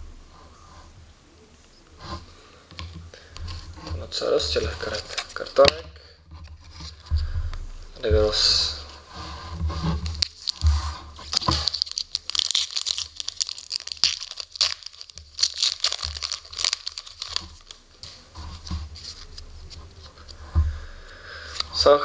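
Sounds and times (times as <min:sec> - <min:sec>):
foil wrapper tearing and crinkling: 0:04.2 - 0:05.7, 0:09.9 - 0:19.4.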